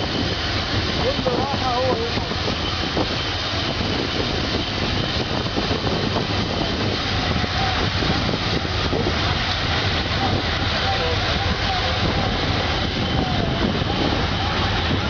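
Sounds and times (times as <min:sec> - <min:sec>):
train rumbling on track: 0:00.0 - 0:15.0
turbine whine: 0:00.0 - 0:15.0.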